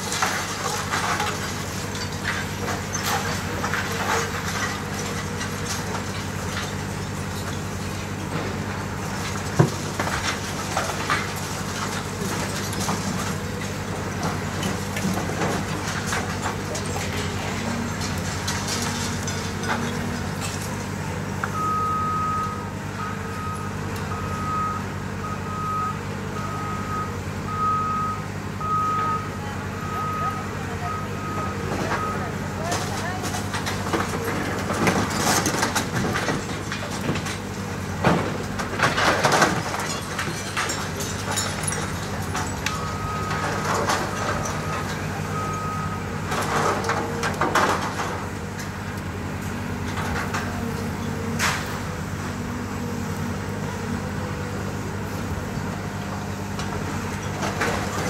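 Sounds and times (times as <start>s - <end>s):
debris falling: 0.0s - 21.1s, 31.7s - 52.2s
diesel excavator engine running: 0.0s - 58.0s
reversing alarm beeping: 21.5s - 32.4s, 42.7s - 46.1s
concrete breaking: 32.6s - 45.1s.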